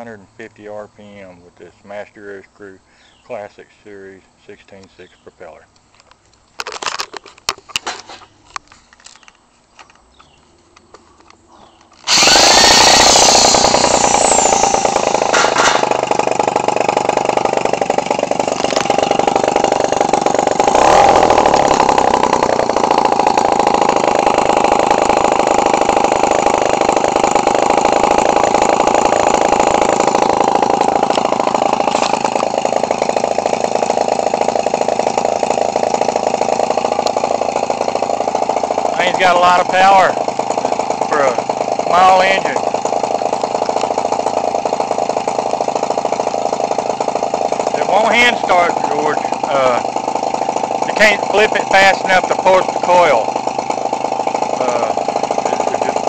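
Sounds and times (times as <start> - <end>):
two-stroke model engine running: 12.0 - 56.0.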